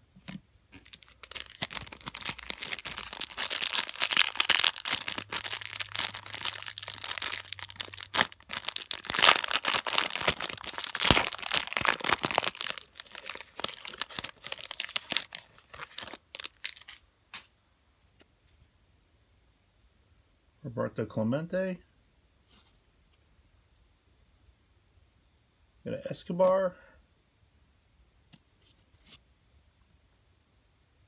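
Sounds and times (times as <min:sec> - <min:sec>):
plastic wrapper crinkling and tearing: 0:00.7 - 0:17.0.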